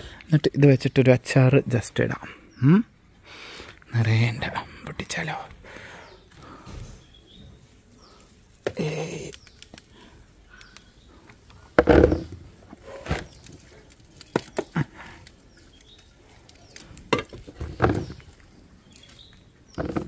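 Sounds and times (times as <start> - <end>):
rustles and snaps of fruit picking: 6.3 - 20.0.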